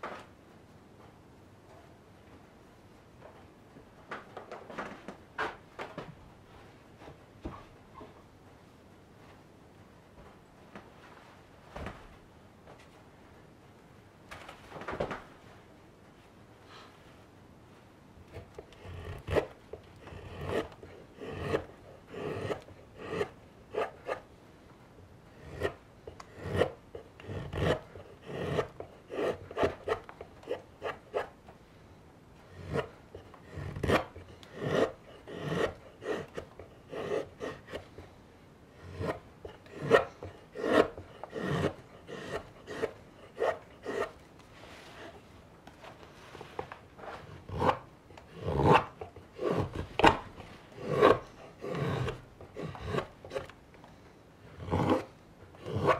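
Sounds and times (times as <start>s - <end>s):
knife scraping wood: 18.3s - 24.3s, 25.4s - 31.4s, 32.5s - 38.0s, 38.8s - 45.2s, 46.1s - 53.5s, 54.6s - 55.9s.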